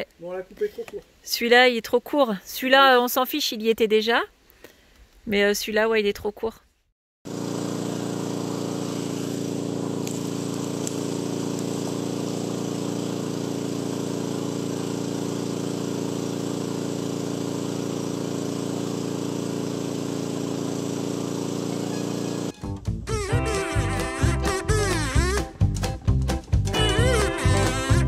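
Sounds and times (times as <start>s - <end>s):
small engine running: 7.3s - 25.6s, 26.8s - 28.0s.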